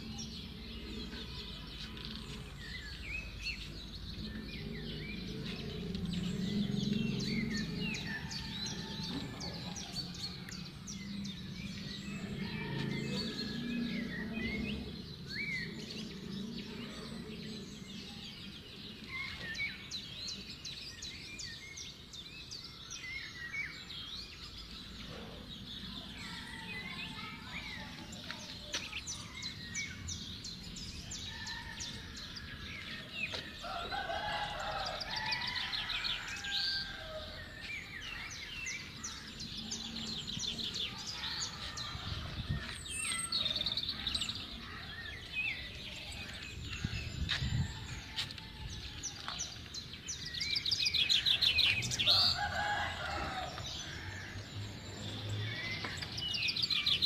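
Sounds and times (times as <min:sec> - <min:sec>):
small birds chirping: 0:00.0 - 0:57.0
chickens calling: 0:50.8 - 0:54.7.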